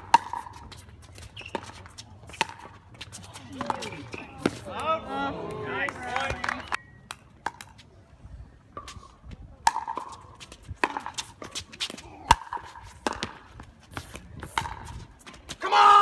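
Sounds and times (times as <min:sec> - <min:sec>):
wind rumbling on microphone: 0:08.1 - 0:09.7.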